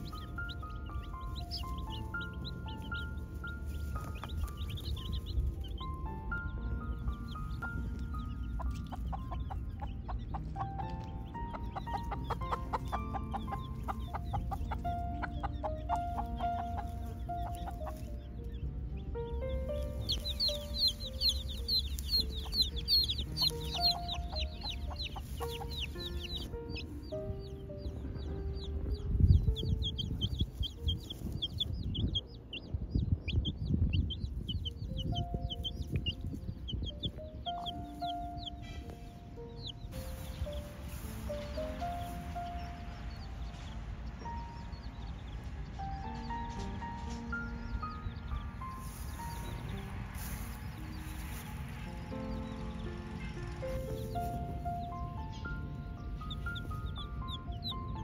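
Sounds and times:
hen clucking: 0:00.0 - 0:18.6, 0:19.2 - 0:32.6, 0:33.9 - 0:43.3
background music: 0:00.0 - 0:58.0
chicks peeping: 0:00.0 - 0:58.0
low rumbling noise: 0:00.0 - 0:58.0.

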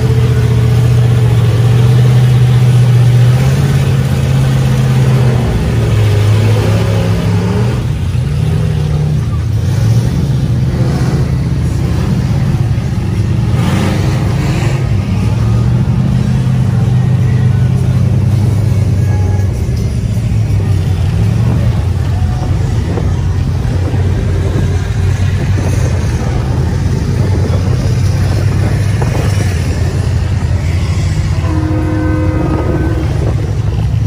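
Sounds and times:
off-road vehicle engines revving: 0:00.0 - 0:34.0.

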